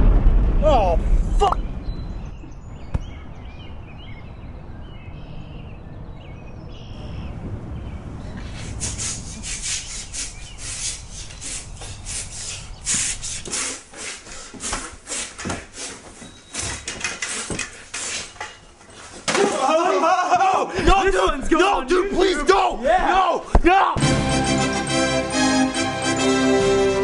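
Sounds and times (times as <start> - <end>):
wind rumble on microphone: 0.0 - 13.5.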